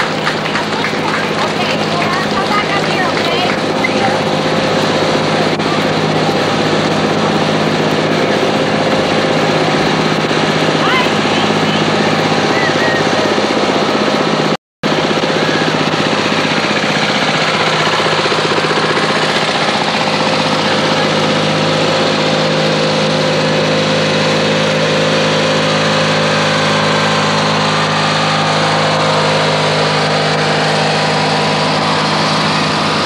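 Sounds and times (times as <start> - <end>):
lawn tractor engines knocking: 0.0 - 33.0.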